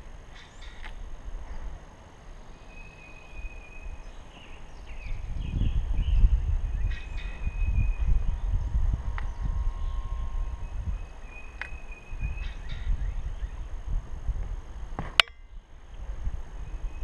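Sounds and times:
low rumble: 5.0s - 16.7s
faint high bird call: 9.2s - 13.6s.

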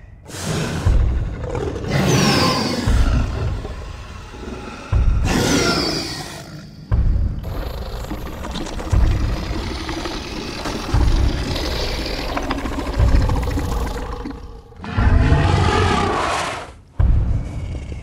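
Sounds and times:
rumbling growl: 7.4s - 18.0s
loud monster roar: 9.2s - 16.7s.

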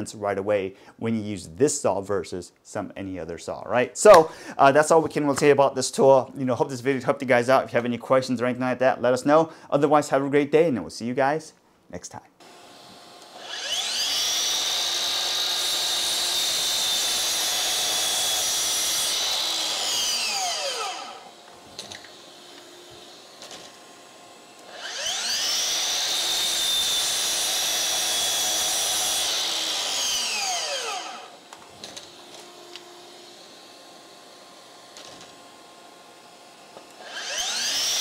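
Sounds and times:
miter saw motor whining: 12.4s - 38.0s.

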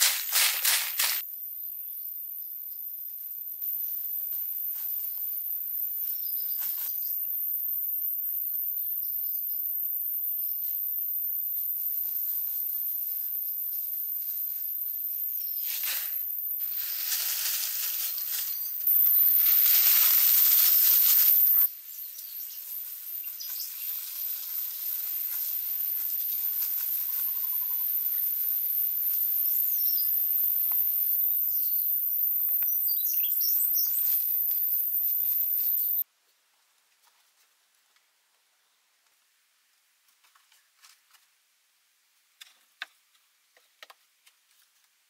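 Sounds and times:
high-pitched insect drone: 0.0s - 36.0s.

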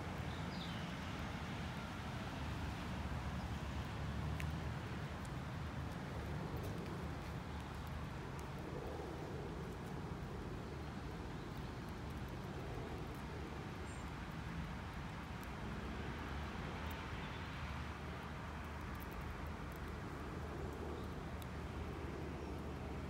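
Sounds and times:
distant road traffic rumble: 0.0s - 23.0s
faint ticks: 18.5s - 21.7s.

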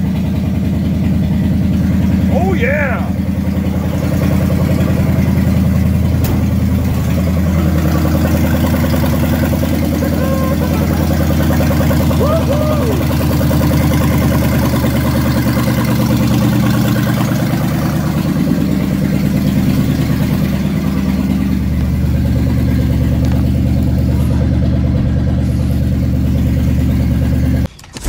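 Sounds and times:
truck engine running: 0.0s - 28.0s.

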